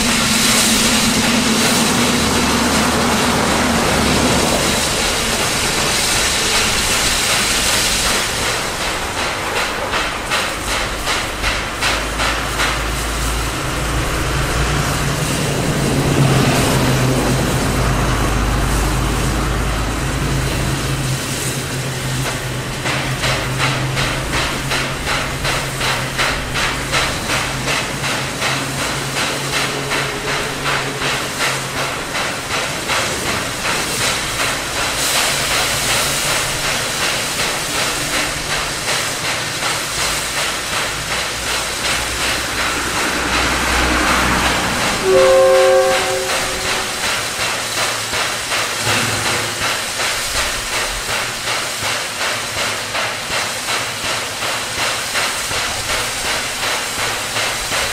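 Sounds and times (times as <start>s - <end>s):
steam hissing: 0.0s - 57.9s
steam locomotive exhaust beating: 0.0s - 57.9s
steam whistle blast: 45.0s - 47.4s.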